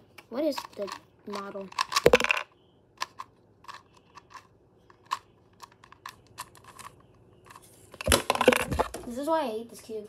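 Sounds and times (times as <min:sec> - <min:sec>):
plastic puzzle cube clicking: 0:00.5 - 0:02.4.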